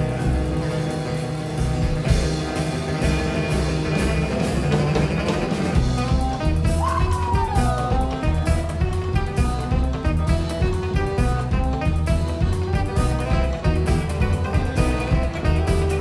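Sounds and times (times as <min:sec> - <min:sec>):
upright bass: 0:00.0 - 0:16.0
accordion: 0:07.8 - 0:16.0.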